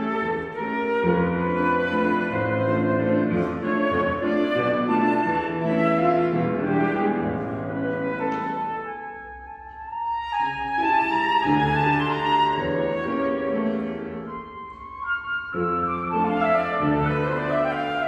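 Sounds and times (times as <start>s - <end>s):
flute melody: 0.0s - 18.0s
piano chords: 0.0s - 18.0s.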